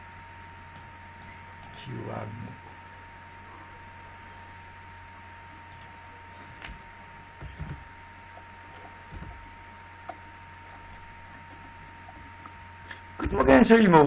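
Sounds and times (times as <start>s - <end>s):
low hum: 0.0s - 13.5s
thin steady whine: 0.0s - 14.0s
keyboard typing: 5.7s - 5.9s.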